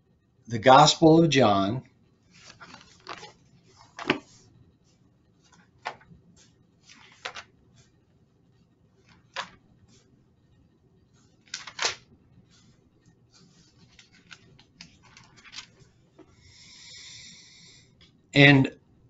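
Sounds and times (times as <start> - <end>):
soft rustles: 2.2 - 10.2, 12.4 - 16.3.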